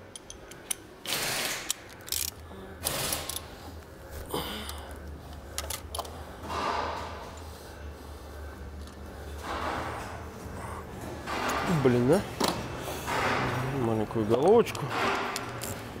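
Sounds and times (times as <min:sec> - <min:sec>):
ratchet wrench clicking: 0:00.1 - 0:02.4.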